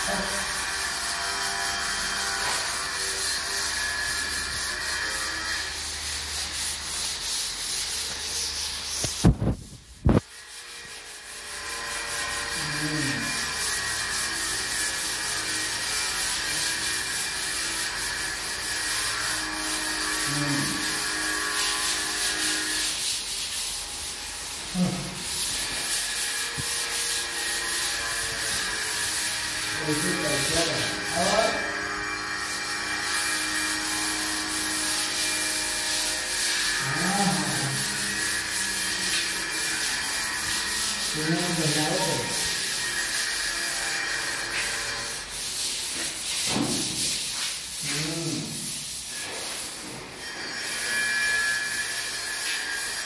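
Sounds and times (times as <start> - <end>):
hand sanding a wall: 0.0 - 53.0.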